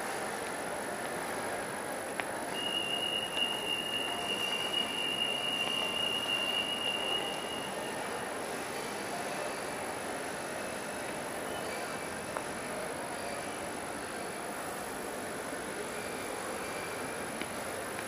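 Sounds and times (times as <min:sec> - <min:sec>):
shopping mall background noise: 0:00.0 - 0:18.0
high-pitched whistle-like tone: 0:02.6 - 0:08.2.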